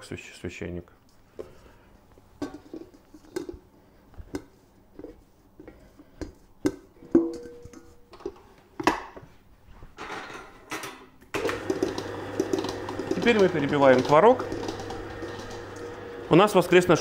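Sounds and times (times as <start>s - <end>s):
stand mixer running: 11.4s - 17.0s.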